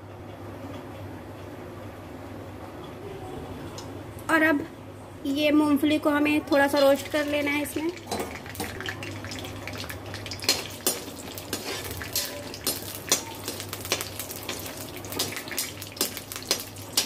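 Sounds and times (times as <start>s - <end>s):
oil frying sizzle: 6.6s - 17.0s
metal ladle scraping a pan: 10.5s - 14.6s.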